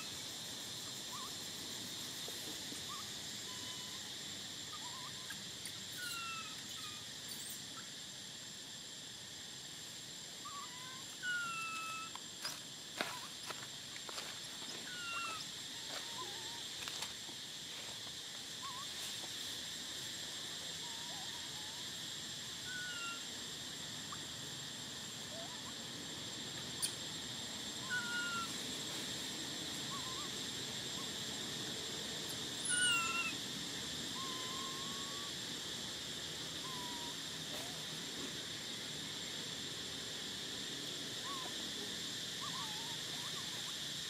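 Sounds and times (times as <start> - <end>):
high chirping animal calls: 4.7 - 7.9, 10.4 - 12.2, 14.7 - 16.6, 22.6 - 23.3, 27.8 - 28.6, 32.6 - 33.4, 34.2 - 35.3, 36.6 - 37.2, 42.4 - 43.7.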